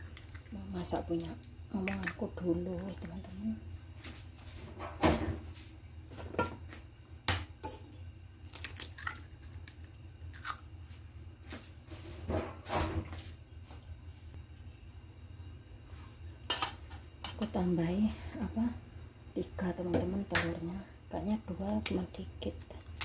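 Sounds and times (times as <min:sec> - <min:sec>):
low steady hum: 0:00.0 - 0:23.0
eggshell breaking: 0:08.4 - 0:10.6.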